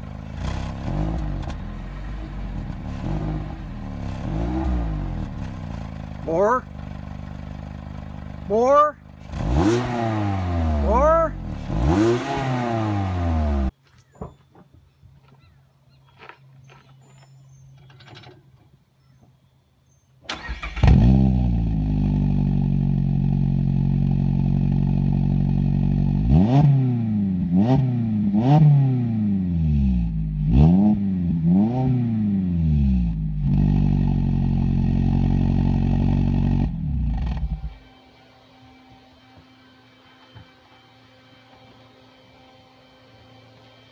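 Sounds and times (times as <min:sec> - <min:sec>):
car engine revving: 0:00.0 - 0:08.6, 0:09.2 - 0:13.7, 0:20.3 - 0:42.1
car engine starting and idling: 0:00.0 - 0:13.7, 0:20.3 - 0:26.2.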